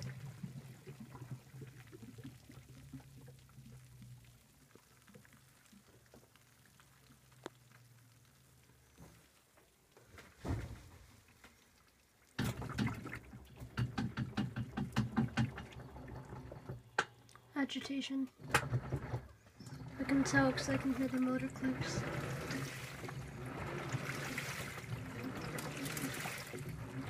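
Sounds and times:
washer motor hum: 0:00.0 - 0:02.2, 0:12.4 - 0:17.3, 0:18.2 - 0:27.0
watery rush with rapid clicks: 0:00.0 - 0:09.7, 0:11.2 - 0:17.1, 0:18.4 - 0:27.0
thump: 0:10.4 - 0:11.0.

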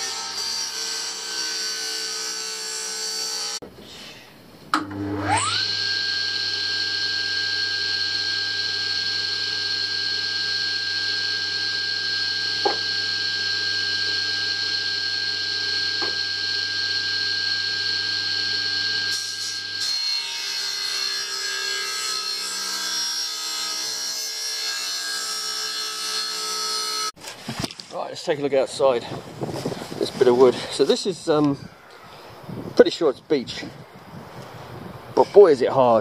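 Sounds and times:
table saw motor whining: 0:04.8 - 0:27.1.

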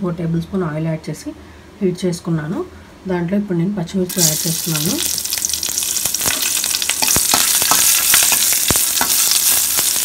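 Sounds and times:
chillies sizzling in oil: 0:04.1 - 0:10.0.

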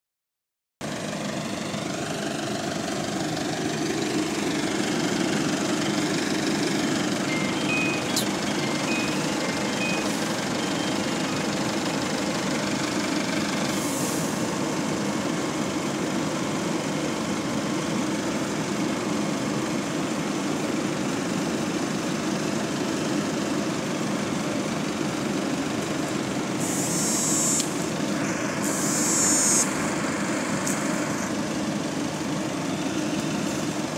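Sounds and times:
bus engine idling: 0:00.8 - 0:33.9
engine cooling fan drone: 0:00.9 - 0:33.9
short bursts of hiss: 0:26.6 - 0:27.8, 0:28.6 - 0:29.7.

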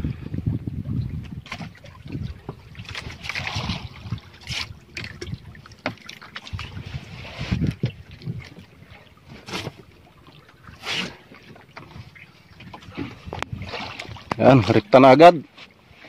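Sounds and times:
low rumbling: 0:00.0 - 0:05.7
wind on microphone: 0:00.0 - 0:05.8, 0:06.4 - 0:11.2, 0:11.8 - 0:14.8.

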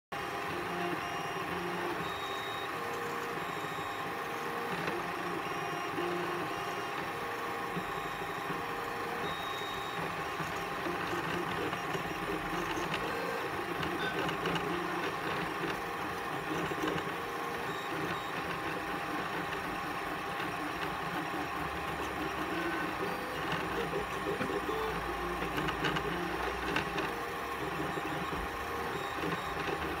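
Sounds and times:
cooling fans humming: 0:00.2 - 0:30.0.

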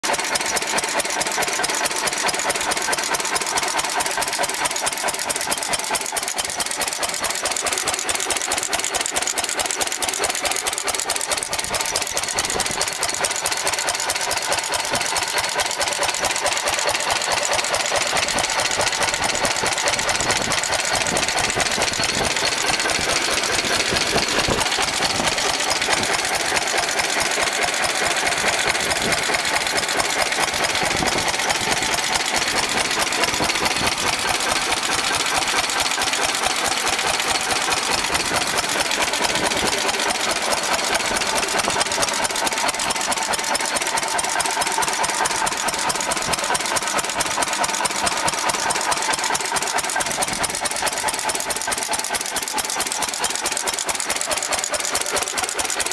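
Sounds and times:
stationary engine running: 0:00.0 - 0:55.9.

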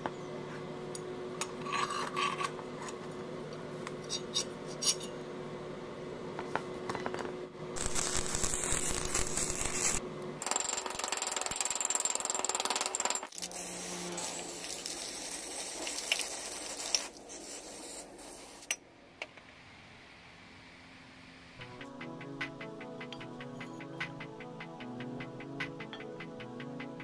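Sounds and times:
workshop tool rushing with whine: 0:07.8 - 0:10.0
steady hiss: 0:13.4 - 0:18.8.

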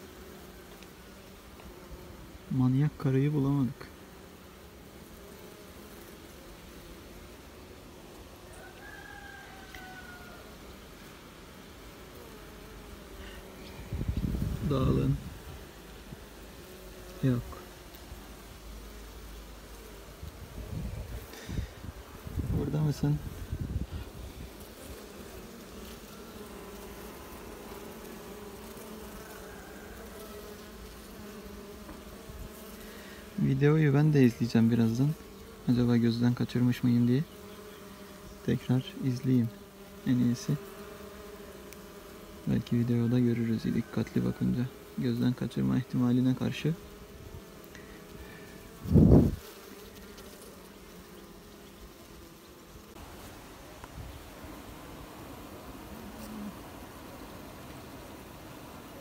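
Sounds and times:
bees buzzing: 0:00.0 - 0:59.0.

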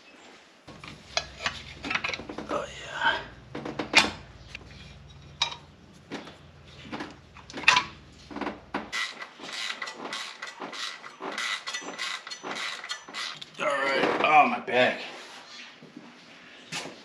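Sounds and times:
tools and metal parts clinking: 0:00.7 - 0:02.8, 0:03.4 - 0:13.6.

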